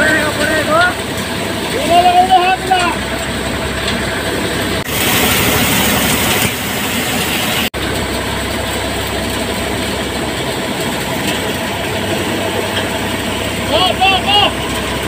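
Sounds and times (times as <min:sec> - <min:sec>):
threshing machine running: 0:00.0 - 0:15.0
hissy rush: 0:04.9 - 0:07.7.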